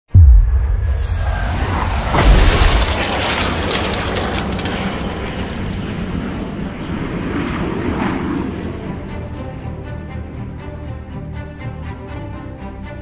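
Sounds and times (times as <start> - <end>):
deep boom: 0.1 - 4.9.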